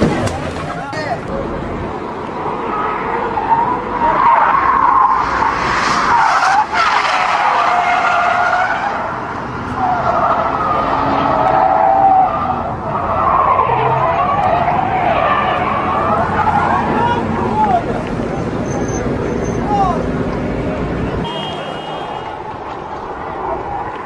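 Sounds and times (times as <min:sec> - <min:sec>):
tyres screeching: 0:02.5 - 0:09.1, 0:09.7 - 0:20.1.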